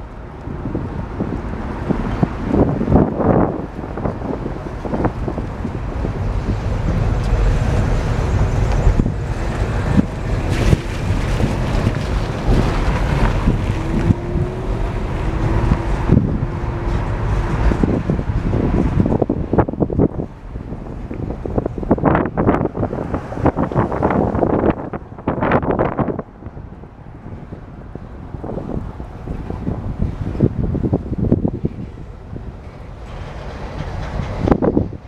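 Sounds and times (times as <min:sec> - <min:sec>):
train wheels rumbling on rails: 0:00.0 - 0:35.0
wind buffeting microphone: 0:00.0 - 0:35.0
sharp clanks of train cars: 0:03.2 - 0:14.2, 0:28.6 - 0:35.0.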